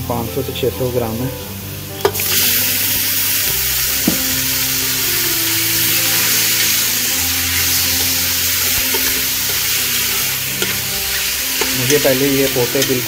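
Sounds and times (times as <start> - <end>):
meat sizzling in hot oil: 1.4 - 13.0
spatula stirring: 5.7 - 13.0.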